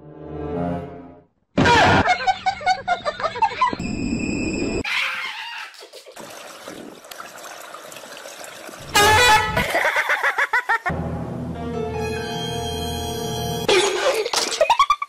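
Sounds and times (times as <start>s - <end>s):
loud water splashing: 6.2s - 10.0s
water washing in pool: 6.2s - 10.7s.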